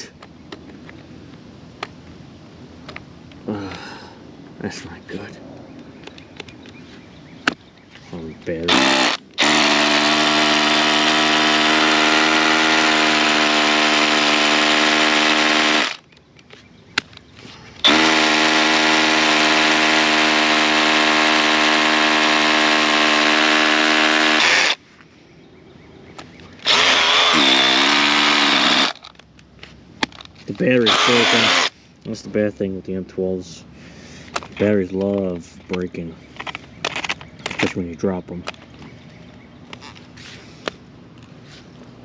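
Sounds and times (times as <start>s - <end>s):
drill boring into concrete: 8.7s - 16.0s, 17.8s - 24.8s, 26.6s - 29.1s, 30.7s - 31.7s.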